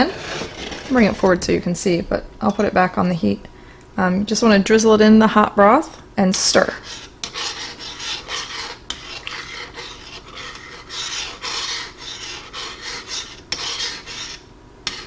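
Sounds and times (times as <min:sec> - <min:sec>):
metal spoon scraping a saucepan: 0:00.0 - 0:01.6, 0:06.6 - 0:15.0.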